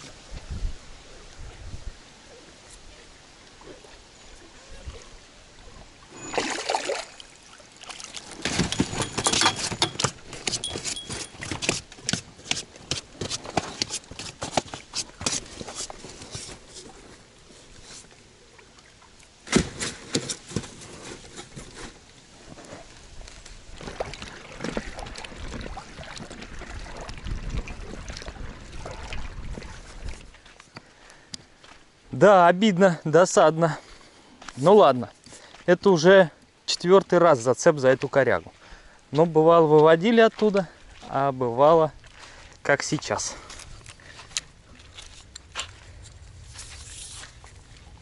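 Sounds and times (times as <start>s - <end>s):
wind rumble on microphone: 0.0s - 2.1s, 23.1s - 30.4s, 44.5s - 48.0s
water splashing and trickling: 1.2s - 32.6s, 34.8s - 48.0s
fish handled on boat floor: 7.9s - 18.2s.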